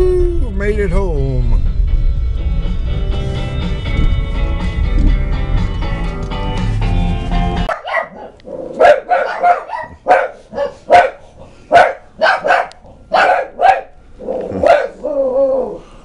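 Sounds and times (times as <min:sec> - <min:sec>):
background music: 0:00.2 - 0:07.7
dog barking: 0:07.7 - 0:13.9, 0:14.6 - 0:15.0.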